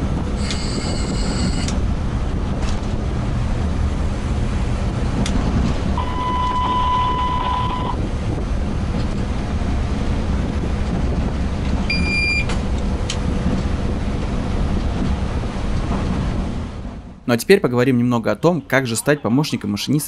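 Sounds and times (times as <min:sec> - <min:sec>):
locomotive cab low rumble: 0:00.0 - 0:20.0
electronic cab beep: 0:00.4 - 0:01.7, 0:06.0 - 0:08.0, 0:11.9 - 0:12.5.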